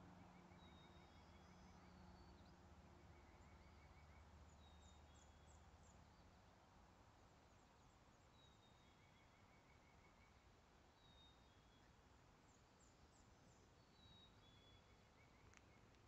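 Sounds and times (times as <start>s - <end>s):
distant traffic hum: 0.0s - 16.0s.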